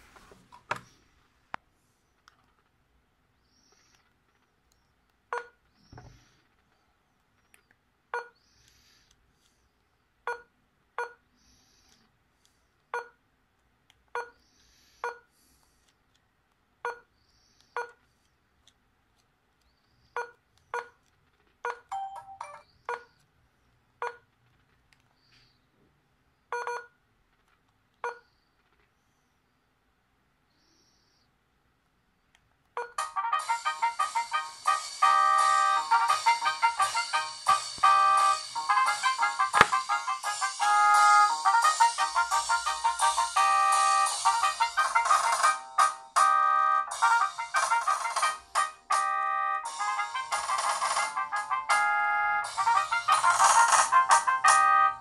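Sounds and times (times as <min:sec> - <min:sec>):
mobile phone keypad beeps: 0:21.6 - 0:23.2.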